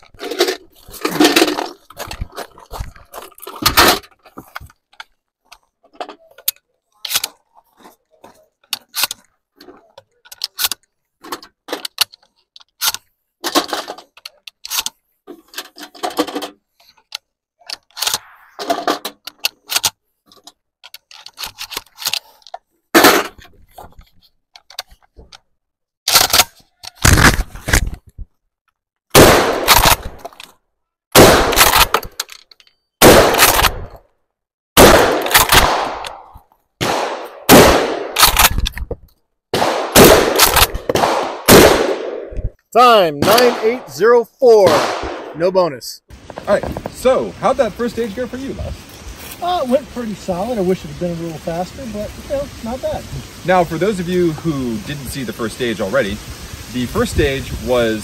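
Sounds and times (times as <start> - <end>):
gun handling clicks and clacks: 0.0 - 28.8, 29.6 - 30.7, 31.5 - 34.1, 35.1 - 37.4, 38.1 - 39.3, 40.3 - 41.1
loud gunshots: 29.1 - 30.1, 31.2 - 31.7, 33.0 - 33.7, 34.8 - 36.0, 36.8 - 38.2, 39.5 - 42.3, 44.6 - 45.4.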